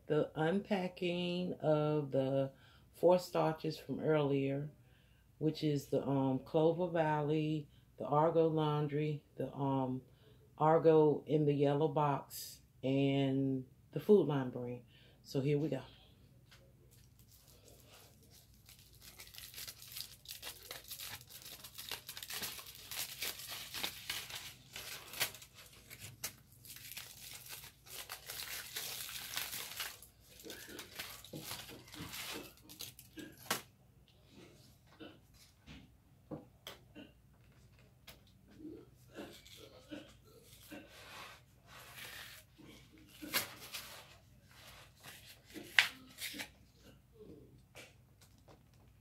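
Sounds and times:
foil crinkling and tearing: 16.9s - 33.6s.

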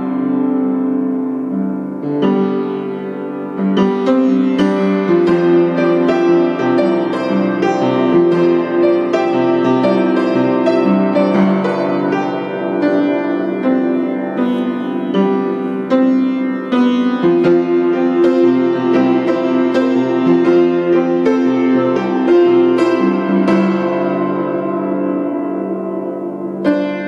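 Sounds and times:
piano music: 0.0s - 27.0s.

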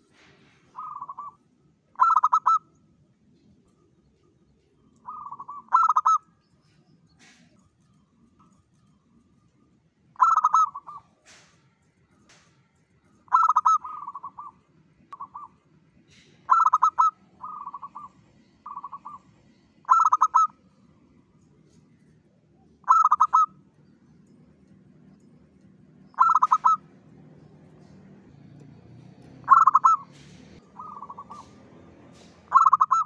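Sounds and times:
dove cooing: 0.6s - 1.4s, 2.0s - 2.7s, 5.0s - 6.2s, 10.2s - 11.2s, 13.3s - 14.6s, 15.2s - 20.5s, 22.8s - 23.6s, 26.1s - 27.9s, 29.4s - 33.0s.

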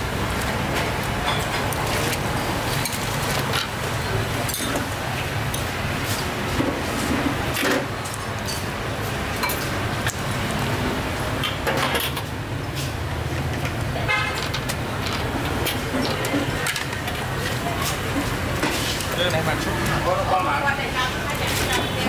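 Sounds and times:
low rumble of road traffic: 0.0s - 22.0s
vehicle horn toot: 14.0s - 14.4s.

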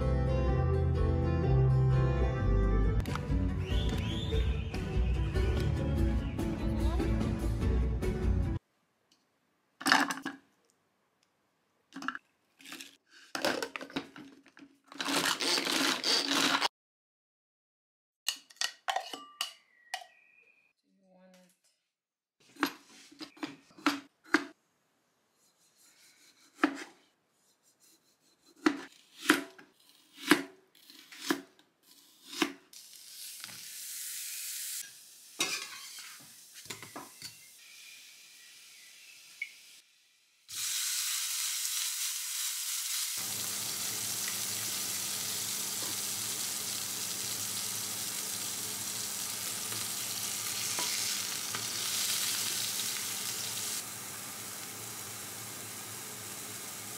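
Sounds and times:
meat sizzling in frying pan: 32.8s - 39.8s, 40.5s - 56.9s.

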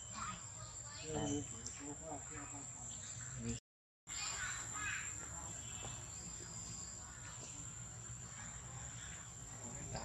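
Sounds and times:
insects droning: 0.0s - 10.0s.

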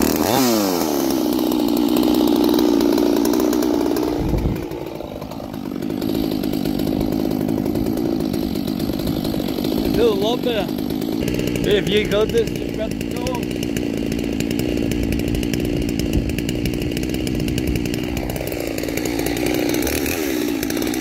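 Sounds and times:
chainsaw idling: 0.0s - 21.0s.

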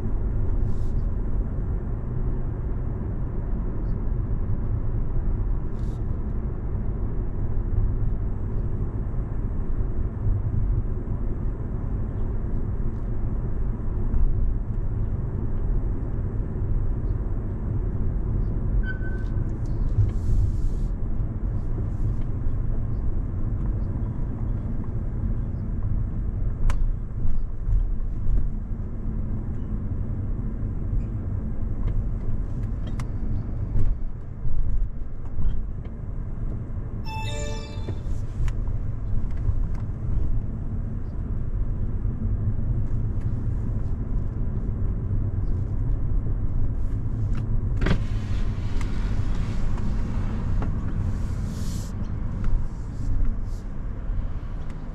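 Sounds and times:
car road and engine rumble: 0.0s - 54.9s
short horn tone: 37.1s - 38.5s.

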